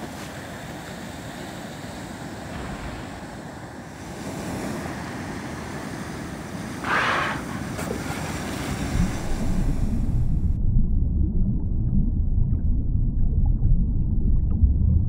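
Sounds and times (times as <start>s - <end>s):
water hiss: 0.0s - 10.3s
sea waves washing: 0.0s - 10.6s.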